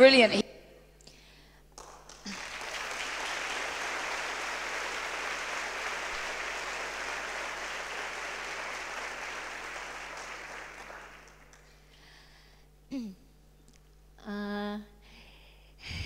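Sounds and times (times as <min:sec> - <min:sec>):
audience applauding: 0:01.7 - 0:11.9.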